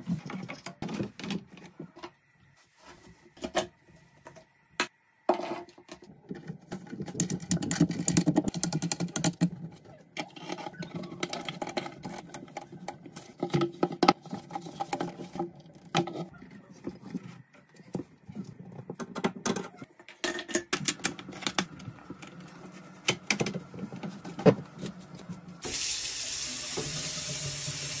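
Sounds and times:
faucet water running into basin: 25.6s - 28.0s.

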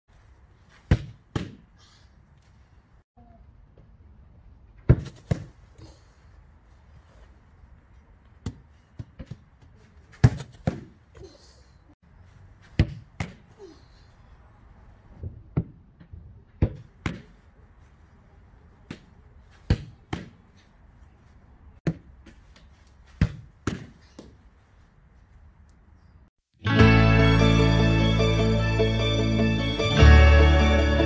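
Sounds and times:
ball thudding into gloves: 0.8s - 1.7s, 4.9s - 5.6s, 10.2s - 11.0s, 12.8s - 13.5s, 18.9s - 20.4s, 21.8s - 24.4s
football thudding on wooden fence: 0.9s - 1.6s, 4.9s - 5.6s.

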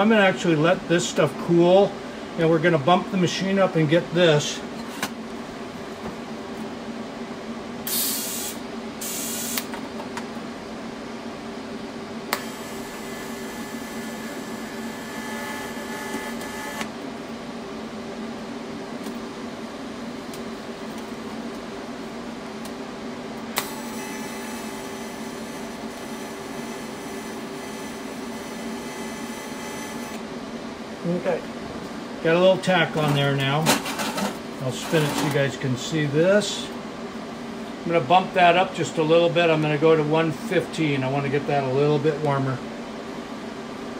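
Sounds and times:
welding arc hiss-buzz: 7.8s - 9.8s, 12.3s - 16.9s, 23.5s - 30.2s
welding machine hum: 7.9s - 9.8s, 12.3s - 17.3s, 19.0s - 30.7s.

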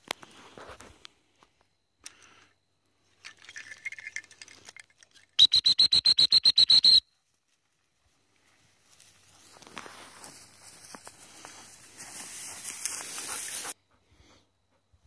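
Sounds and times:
dog whistle trill: 5.4s - 7.1s.

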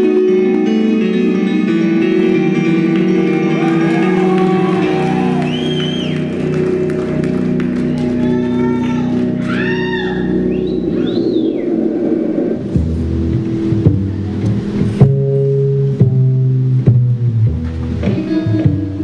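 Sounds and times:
music of held chords: 0.0s - 19.0s
audience whooping: 2.8s - 12.7s.

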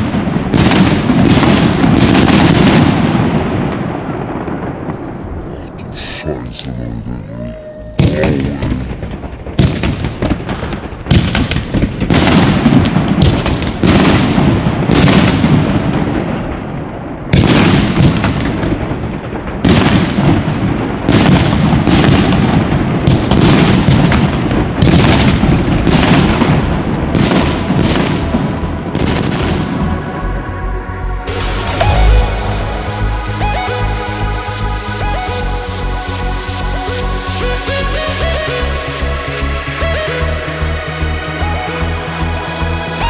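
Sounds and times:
firework shots banging: 0.0s - 5.4s, 8.0s - 16.3s.

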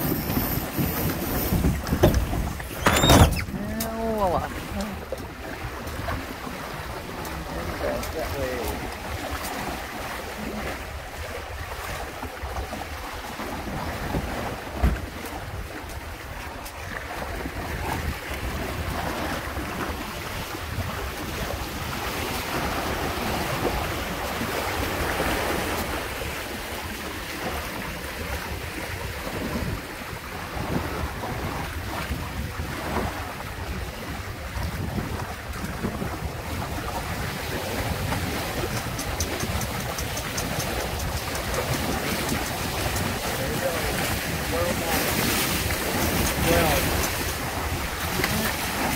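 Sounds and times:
water rushing along hulls: 0.0s - 48.9s
wind buffeting microphone: 0.0s - 48.9s
thump: 14.8s - 15.0s.

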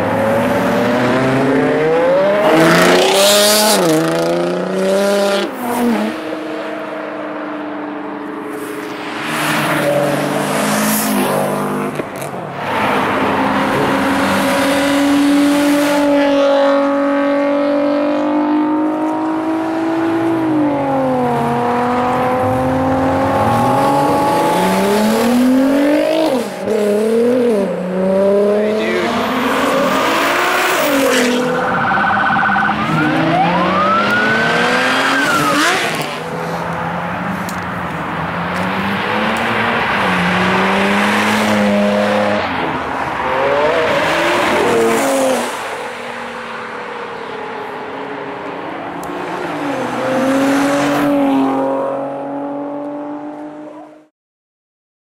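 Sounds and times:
sports cars accelerating past: 0.0s - 54.1s.

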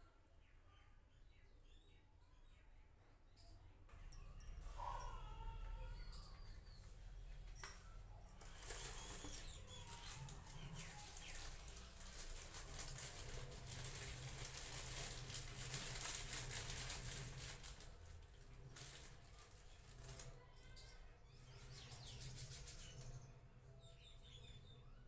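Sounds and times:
rustling with small ticks: 6.2s - 21.0s.

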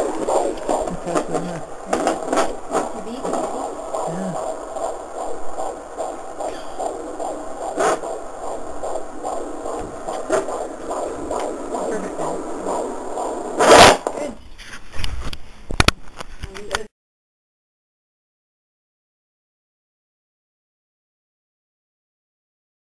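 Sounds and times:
loud rush of noise: 0.0s - 14.2s
fetal heartbeat on doppler: 0.0s - 14.4s
crackles and knocks: 0.0s - 16.8s.

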